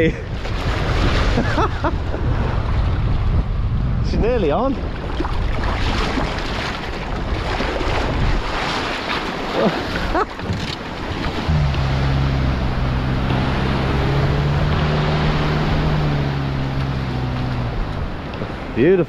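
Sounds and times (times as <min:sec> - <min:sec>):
wind on microphone: 0:00.0 - 0:18.8
surf washing and breaking: 0:00.0 - 0:19.0
vehicle engine at low revs: 0:10.1 - 0:18.8.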